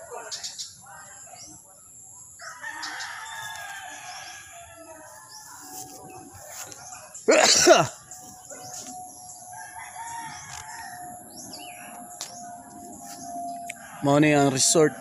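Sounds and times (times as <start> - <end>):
rooster crowing: 2.4 - 6.1, 9.2 - 12.4, 13.4 - 15.0.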